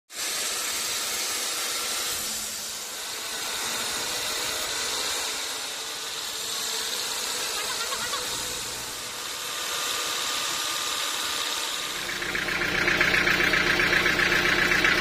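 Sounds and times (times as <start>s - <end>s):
band saw cutting log: 0.1s - 15.0s
low hum: 11.9s - 15.0s.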